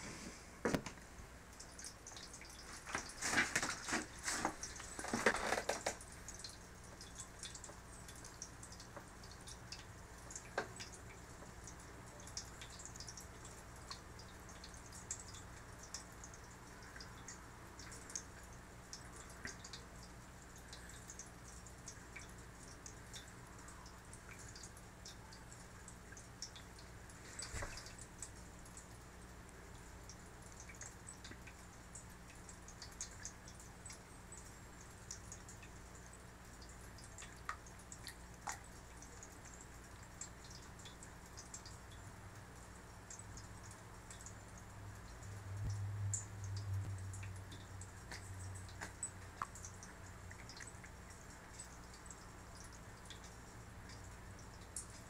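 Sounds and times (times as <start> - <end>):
low steady hum: 0.0 - 55.0
water trickling and dripping: 0.6 - 55.0
handling knocks and rustles: 2.7 - 6.0.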